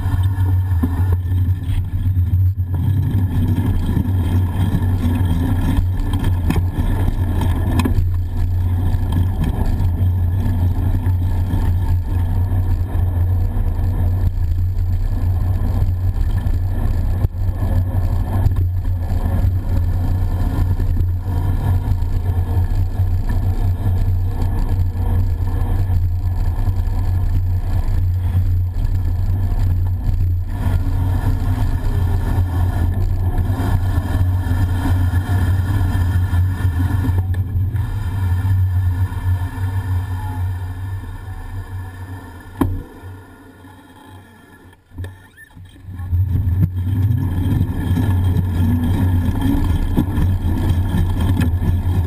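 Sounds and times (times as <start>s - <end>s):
wind and road rumble: 0.0s - 52.0s.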